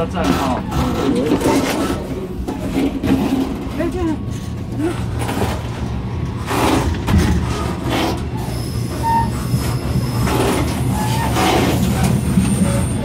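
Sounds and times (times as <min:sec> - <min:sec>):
train rumbling: 0:00.0 - 0:13.0
short high squeals: 0:08.3 - 0:13.0.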